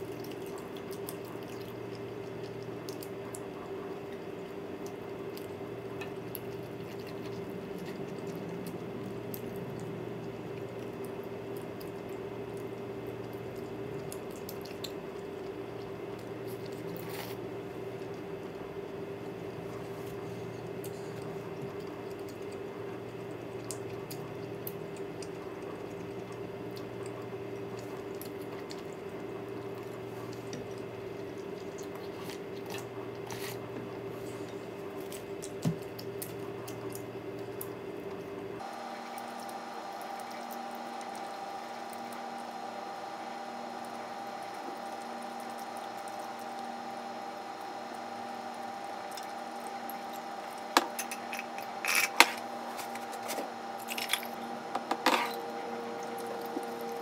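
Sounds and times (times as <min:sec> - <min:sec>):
wet chewing: 0:00.0 - 0:38.3
steady background hum: 0:00.0 - 0:57.0.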